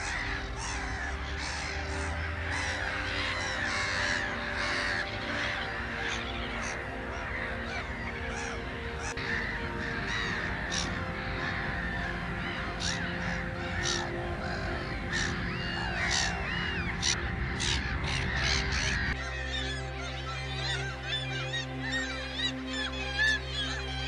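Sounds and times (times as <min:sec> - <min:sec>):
gulls calling: 0:00.0 - 0:24.0.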